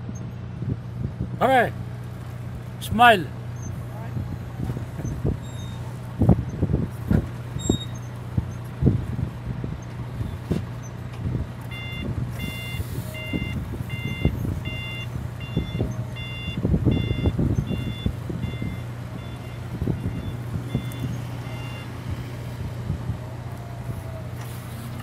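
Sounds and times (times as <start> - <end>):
low engine hum: 0.0 - 25.0
knocks and clunks: 4.6 - 12.1
reversing alarm beeping: 11.7 - 22.3.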